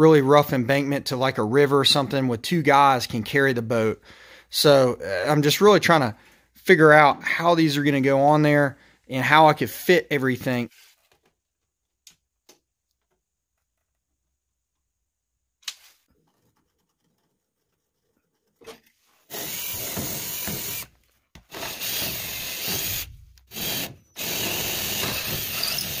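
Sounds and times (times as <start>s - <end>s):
cordless drill boring through aluminum: 19.3s - 26.0s.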